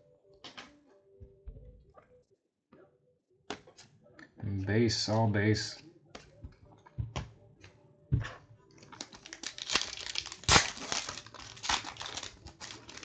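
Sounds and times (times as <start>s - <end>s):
wrapper crinkling and tearing: 8.8s - 13.0s.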